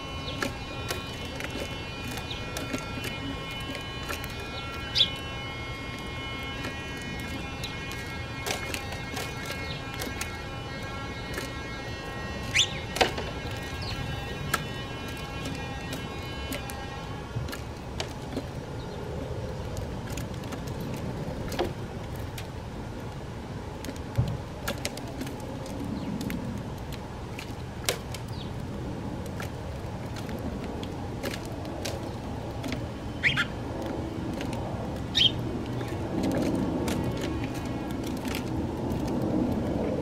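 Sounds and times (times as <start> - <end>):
beaks pecking seed: 0.0 - 40.0
distant road traffic rumble: 0.0 - 40.0
sparrow chirps: 2.1 - 2.7, 4.3 - 5.2, 12.4 - 13.0, 33.2 - 33.6, 35.1 - 36.0.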